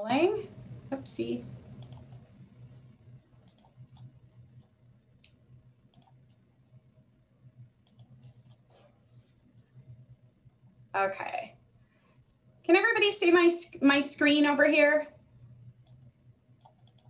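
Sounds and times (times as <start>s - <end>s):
low steady hum: 0.0s - 17.0s
computer mouse clicks: 1.7s - 2.4s, 3.4s - 6.4s, 7.8s - 8.7s, 15.8s - 17.0s.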